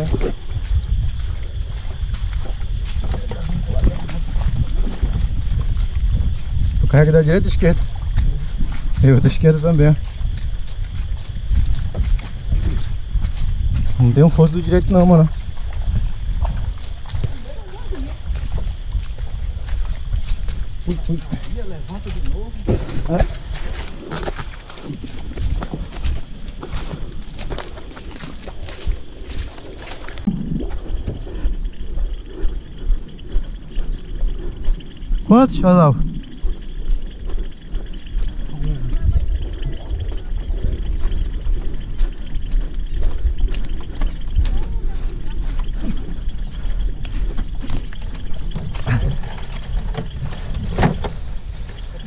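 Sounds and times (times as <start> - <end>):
wind buffeting microphone: 0.0 - 52.0
knocks and rustling: 48.4 - 51.8.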